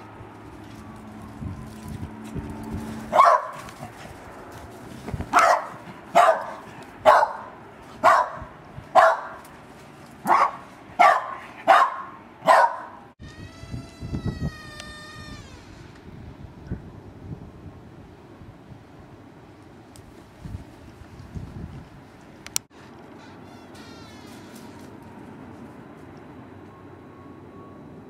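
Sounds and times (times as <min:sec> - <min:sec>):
dog barking: 0:03.1 - 0:03.7, 0:05.3 - 0:09.4, 0:10.2 - 0:13.0.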